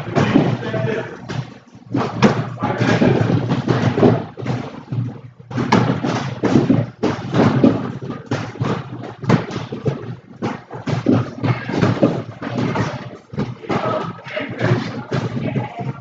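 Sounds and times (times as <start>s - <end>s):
kicks thudding on heavy bags: 0.0s - 16.0s.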